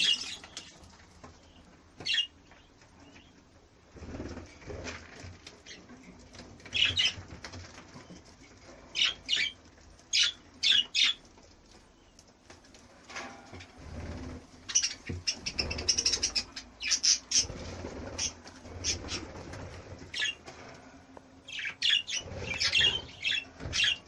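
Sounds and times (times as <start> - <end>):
wings fluttering: 3.9 - 24.0
budgerigars chirping: 9.0 - 11.2, 14.7 - 19.3, 21.5 - 24.0.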